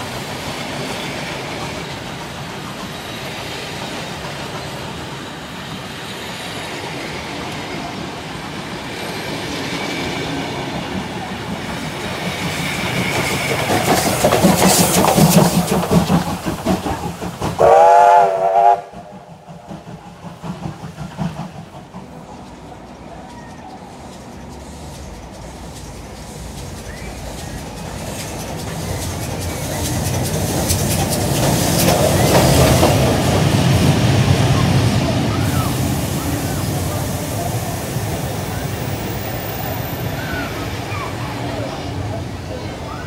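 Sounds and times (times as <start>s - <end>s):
train wheels clattering over rail joints: 0.0s - 17.9s, 19.0s - 40.1s
steam locomotive exhaust chuffing: 0.0s - 43.0s
steam whistle blast: 17.6s - 19.1s.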